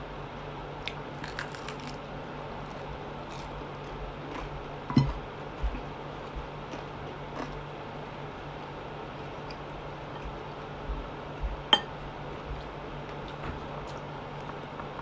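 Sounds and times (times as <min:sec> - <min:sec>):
steady low hum: 0:00.0 - 0:15.0
fried chicken pulled apart: 0:01.2 - 0:02.0.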